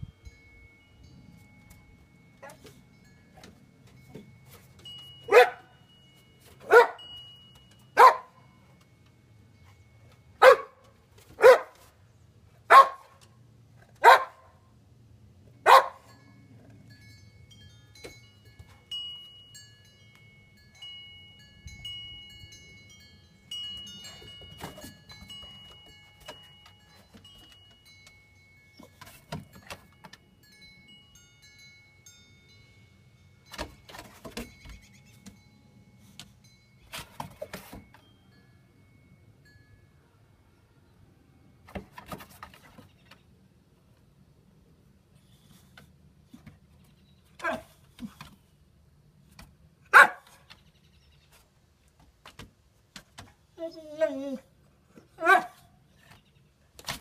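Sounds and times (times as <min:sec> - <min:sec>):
dog barking: 0:05.3 - 0:05.7, 0:06.7 - 0:07.0, 0:08.0 - 0:08.3, 0:10.4 - 0:10.8, 0:11.4 - 0:11.8, 0:12.7 - 0:13.2, 0:14.0 - 0:14.5, 0:15.6 - 0:16.1, 0:47.4 - 0:47.7, 0:49.9 - 0:50.3, 0:55.2 - 0:55.6.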